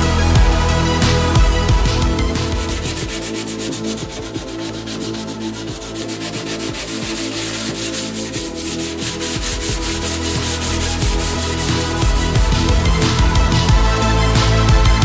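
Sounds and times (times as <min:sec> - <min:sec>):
sandpaper rasping on filler: 0:02.3 - 0:13.3.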